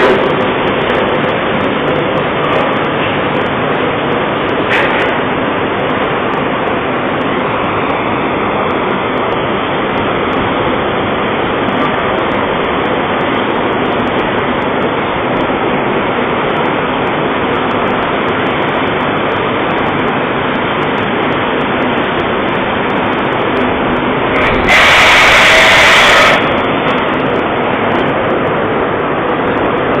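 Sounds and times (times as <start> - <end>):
rolling mill machine noise: 0.0 - 30.0
loud hiss: 24.3 - 27.0.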